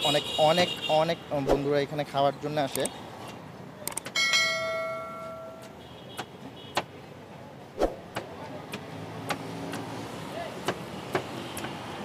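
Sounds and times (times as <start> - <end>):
ringing tone: 4.2 - 5.6
machete chopping coconut husk: 7.8 - 10.0, 10.6 - 11.8.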